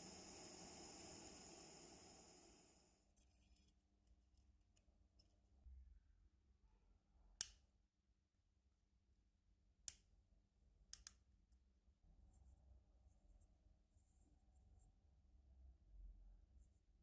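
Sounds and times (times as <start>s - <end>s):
small metallic clicks of lamp parts: 10.9s - 11.2s.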